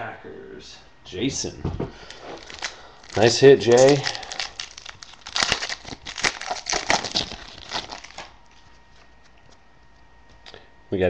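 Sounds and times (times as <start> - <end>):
foil wrapper crinkling: 2.0 - 9.4.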